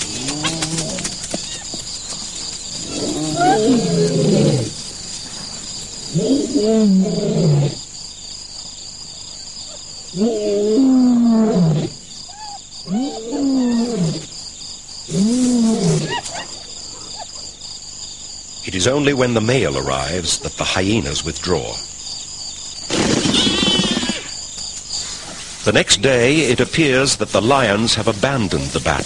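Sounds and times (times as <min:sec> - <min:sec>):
crickets chirping: 0:00.0 - 0:29.0
lions growling: 0:02.8 - 0:04.8.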